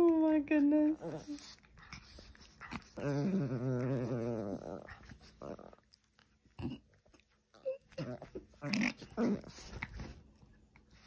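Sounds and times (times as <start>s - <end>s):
small dog growling: 1.0s - 9.8s.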